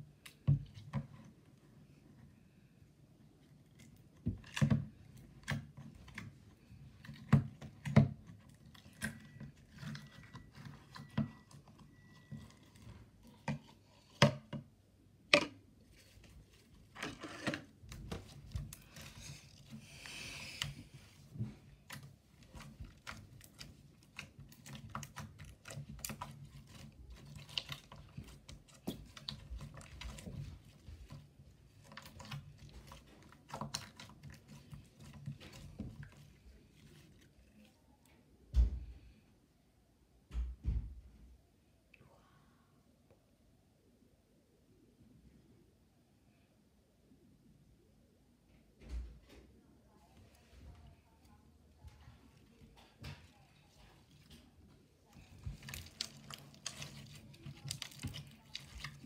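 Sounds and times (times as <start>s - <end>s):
slime squishing and clicking: 55.3s - 59.0s.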